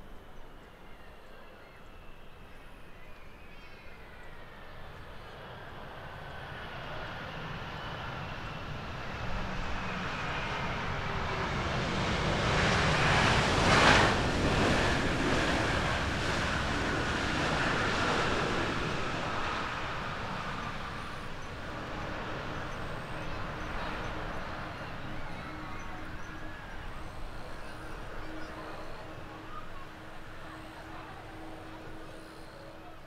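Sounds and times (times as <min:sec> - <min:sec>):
jet engines rushing: 0:03.9 - 0:33.0.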